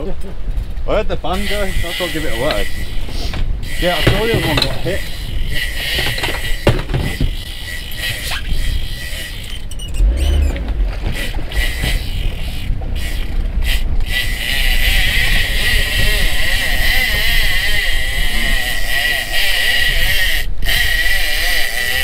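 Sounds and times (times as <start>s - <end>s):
wind noise on microphone: 0.0s - 22.0s
small boat motor running: 1.4s - 22.0s
knocks: 3.3s - 4.8s, 6.0s - 7.4s.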